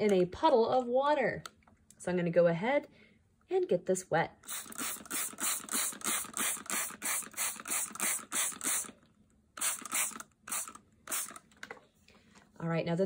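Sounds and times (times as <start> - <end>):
spray bottle squirting: 4.4 - 9.0, 9.6 - 11.4.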